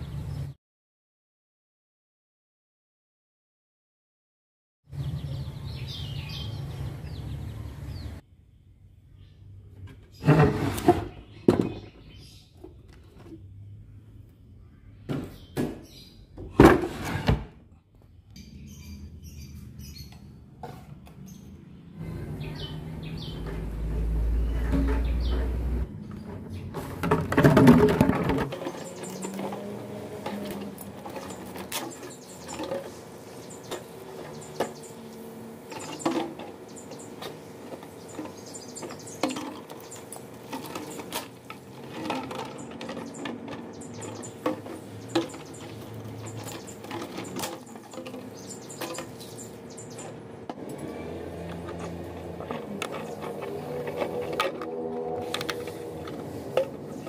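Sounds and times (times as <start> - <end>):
plastic bottles crinkling and knocking: 26.2 - 34.8, 35.7 - 49.6, 50.5 - 57.0
knife scraping plastic: 51.5 - 57.0.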